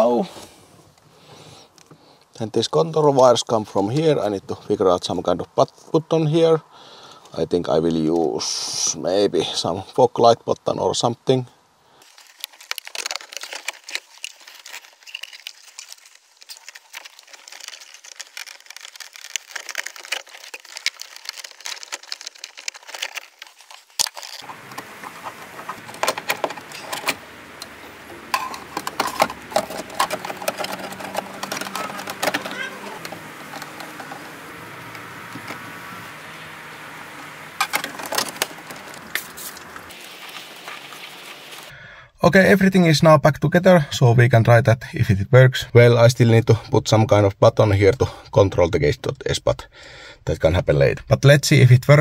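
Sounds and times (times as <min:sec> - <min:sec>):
screwdriver work: 0:28.3 - 0:34.2.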